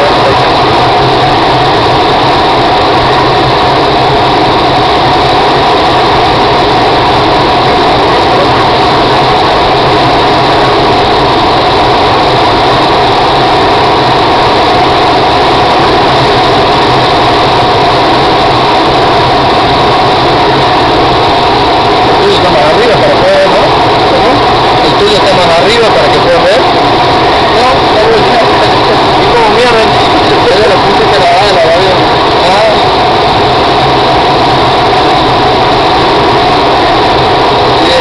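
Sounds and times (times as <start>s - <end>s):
plane engine drone: 0.0s - 38.0s
rush of cockpit airflow: 0.0s - 38.0s.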